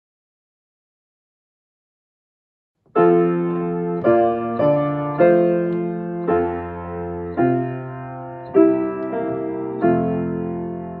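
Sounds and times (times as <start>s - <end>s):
piano playing slow chords: 2.9s - 11.0s.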